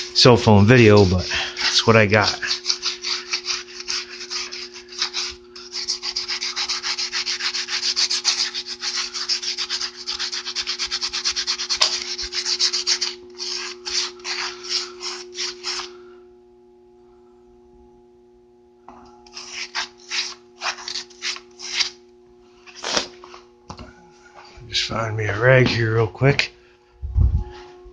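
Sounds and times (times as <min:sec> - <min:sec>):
scouring pad scrubbing metal: 0:00.0 - 0:15.9.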